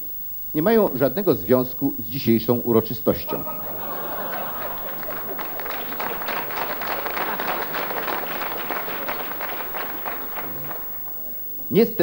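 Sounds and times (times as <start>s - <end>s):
audience applause: 3.2s - 11.8s.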